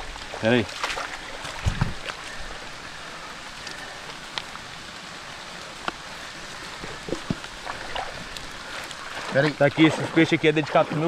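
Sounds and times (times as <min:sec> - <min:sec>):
hiss of moving water: 0:00.0 - 0:11.0
faint clicks: 0:03.6 - 0:04.6.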